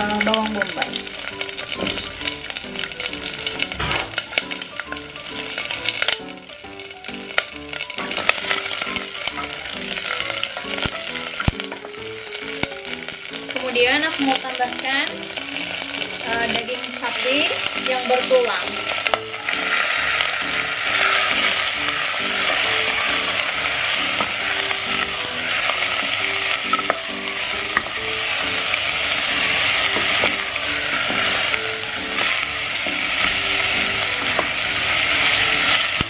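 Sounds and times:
meat sizzling in a pot: 0.0 - 36.0
wooden spatula stirring: 25.0 - 36.0.

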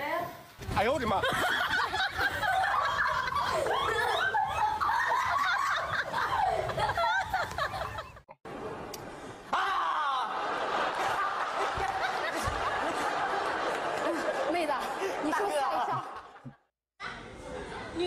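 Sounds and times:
people laughing loudly: 1.0 - 8.3, 9.6 - 16.6.

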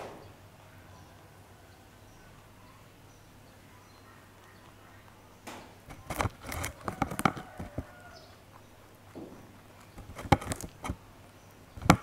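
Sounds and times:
rabbit chewing: 0.0 - 12.0
crunching cauliflower: 4.0 - 12.0.

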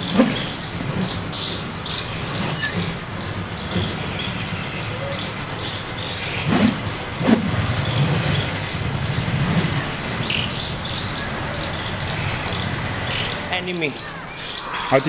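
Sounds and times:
stick swishing through air: 0.0 - 1.1, 6.3 - 8.6
background rumble: 0.0 - 15.0.

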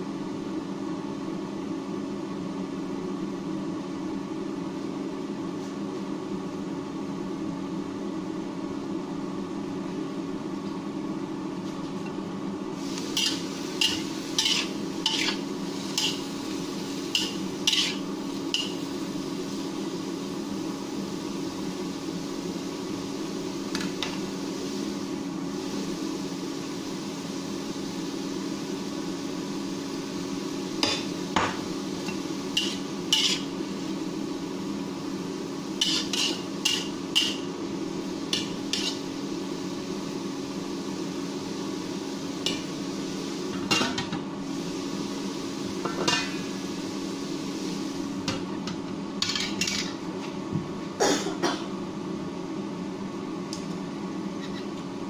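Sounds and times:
induction cooktop hum: 0.0 - 55.0
metal spatula scraping wok: 13.1 - 16.3, 17.1 - 18.8, 32.6 - 33.5, 35.8 - 37.4, 38.4 - 39.1.

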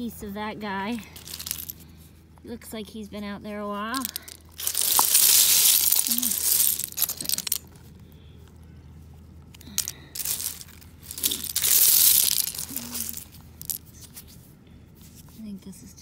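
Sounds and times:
shells and pebbles crunching: 0.9 - 2.0, 3.8 - 14.4.

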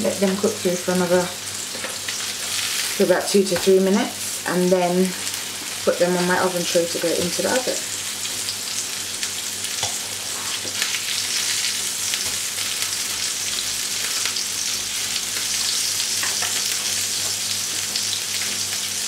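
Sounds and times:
burger patties sizzling in a pan: 0.0 - 19.0.

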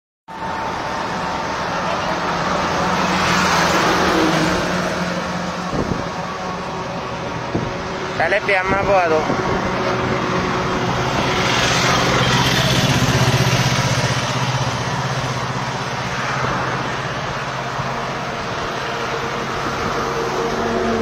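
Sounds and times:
street noise: 0.3 - 21.0.

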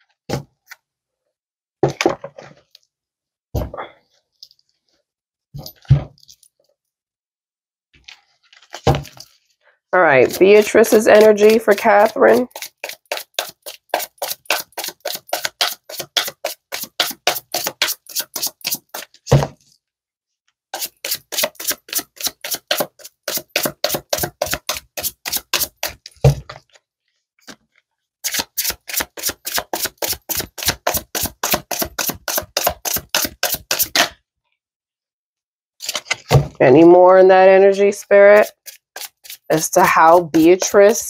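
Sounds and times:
cards being shuffled: 10.2 - 19.2, 20.8 - 26.8, 27.4 - 34.1, 35.8 - 36.4, 38.4 - 39.5.

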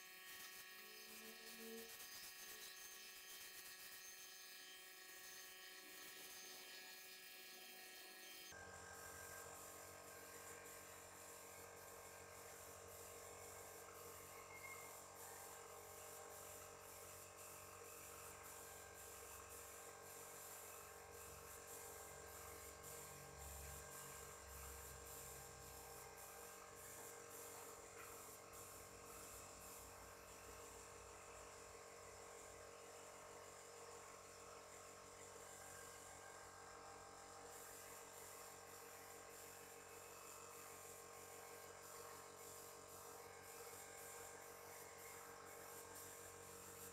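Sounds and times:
spray gun air hiss: 8.6 - 36.1, 37.4 - 46.9.

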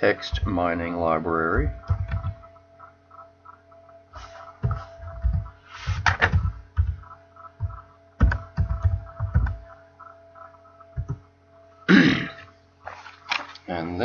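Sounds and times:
typing on computer keyboard: 1.8 - 2.4, 6.1 - 9.6.

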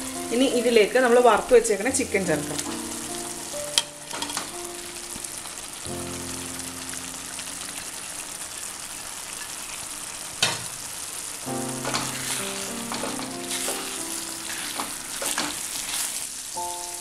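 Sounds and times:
background music with held notes: 0.0 - 8.0, 11.5 - 17.0
chicken sizzling in a frying pan: 0.0 - 17.0
utensil clacking against pan: 12.9 - 13.9, 14.7 - 15.6.

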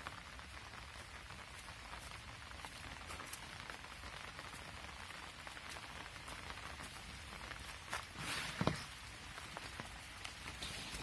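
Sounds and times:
light rain falling: 0.0 - 11.0
raindrops ticking: 0.0 - 11.0
loud rustle: 8.0 - 9.0.

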